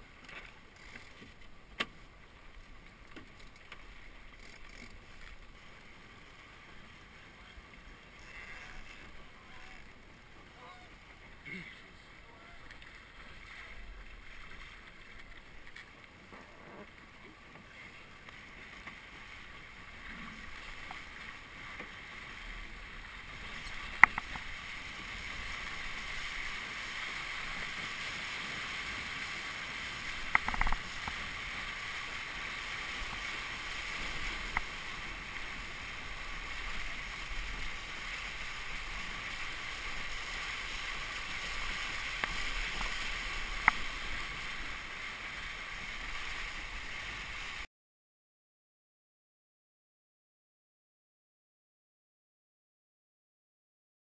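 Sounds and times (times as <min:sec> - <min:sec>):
water rushing past a boat hull: 0:00.0 - 0:47.7
wind: 0:00.0 - 0:47.7
sharp clicks or knocks: 0:30.3 - 0:30.8.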